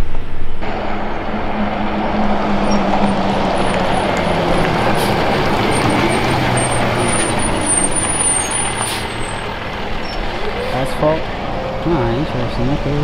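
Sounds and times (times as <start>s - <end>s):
dump truck driving past: 0.1s - 13.0s.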